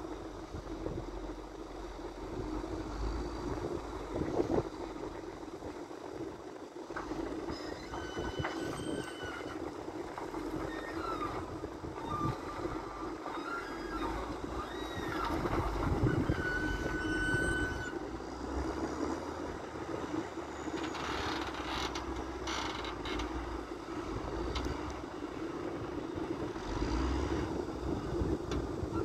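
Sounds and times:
wheel loader diesel engine: 0.0s - 29.0s
short high squeals: 7.5s - 9.6s, 10.6s - 18.0s.

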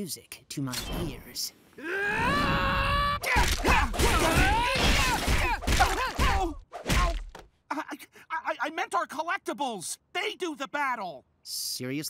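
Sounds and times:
man shouting and yelping: 1.8s - 11.2s
cartoon whacks and thuds: 3.2s - 7.5s.

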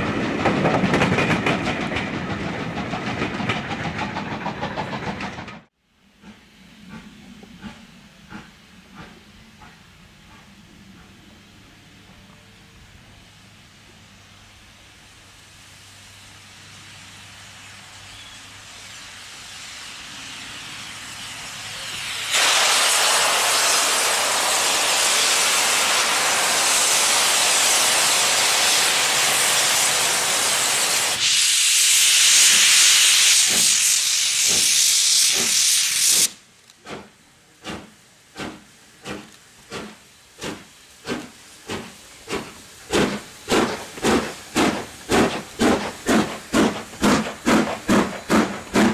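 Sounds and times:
steam locomotive exhaust beats: 0.0s - 48.9s
loud hiss of escaping steam: 13.3s - 48.9s.

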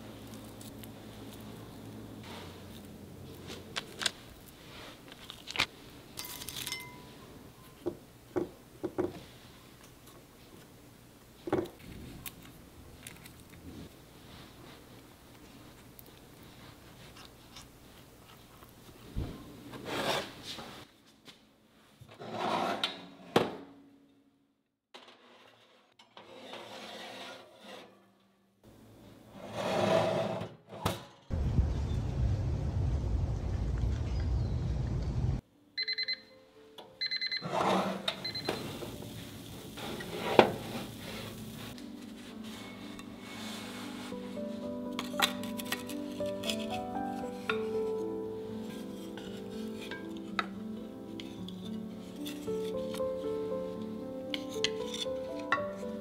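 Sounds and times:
wind rumbling on microphone: 31.3s - 35.4s
soft music: 35.4s - 56.0s
oven timer beeping: 35.8s - 36.4s, 37.0s - 38.7s
brushing and rubbing: 39.1s - 44.8s, 45.5s - 50.4s.

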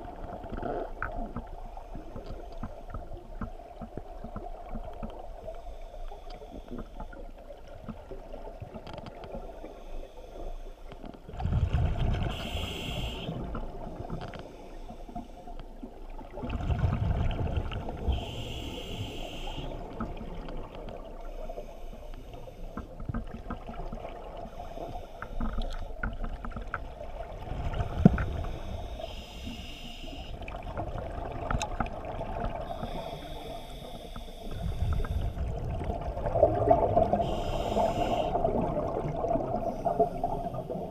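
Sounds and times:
rushing bubbles: 11.3s - 12.4s, 16.2s - 18.1s, 34.6s - 40.9s
diver breathing through regulator: 12.3s - 13.5s, 18.1s - 19.9s, 28.1s - 30.4s, 32.7s - 35.4s, 37.0s - 38.6s.

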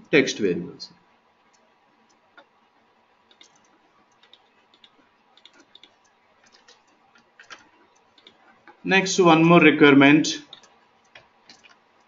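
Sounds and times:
faint computer mouse clicks: 3.3s - 8.8s.

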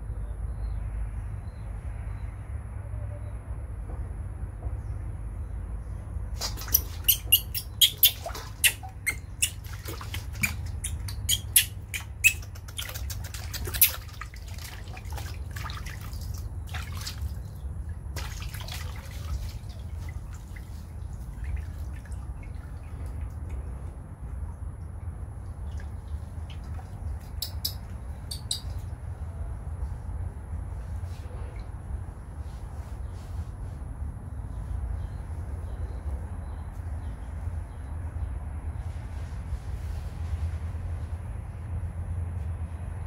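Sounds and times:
steady low hum: 0.0s - 43.0s
water splashing in a steel basin: 6.4s - 23.6s.

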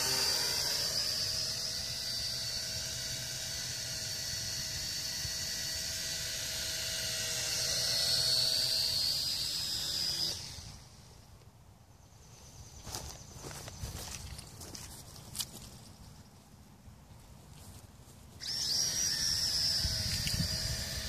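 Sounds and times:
toy drone propellers whining: 0.0s - 11.2s, 18.4s - 21.0s.

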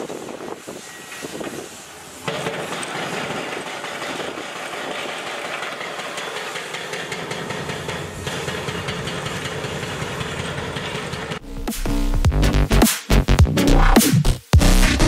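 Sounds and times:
hydraulic breaker pounding steel: 0.1s - 11.6s
diesel engine running: 2.2s - 12.3s.

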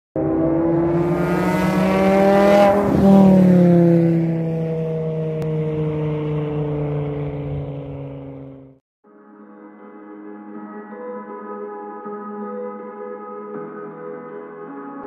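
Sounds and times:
car passing at speed: 0.2s - 8.7s.

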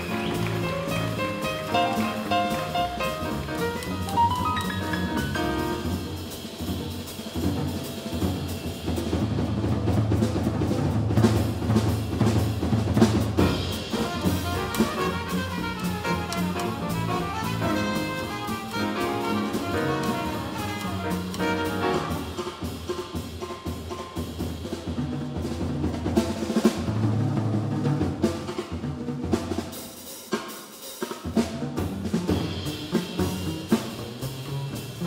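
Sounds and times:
trumpet: 0.0s - 6.0s, 13.4s - 22.7s
double bass: 0.0s - 22.8s, 31.5s - 35.0s
piano: 0.0s - 28.8s, 31.2s - 35.0s
drum kit: 0.0s - 35.0s.

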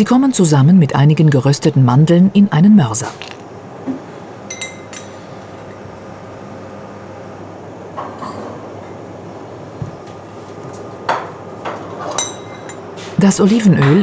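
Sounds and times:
low kitchen hum: 0.0s - 14.0s
metal spoon clinking on pan: 4.5s - 5.1s, 12.2s - 12.8s.

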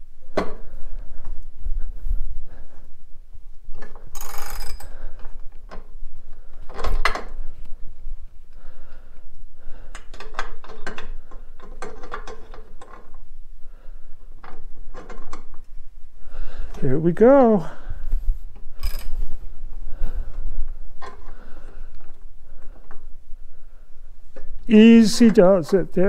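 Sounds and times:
ratchet wrench clicking: 4.2s - 4.9s.

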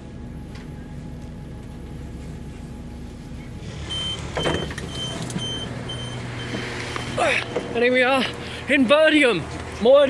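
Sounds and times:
low train hum: 0.0s - 10.0s
train door sliding open: 3.6s - 5.6s
high door warning beeps: 3.9s - 7.9s.

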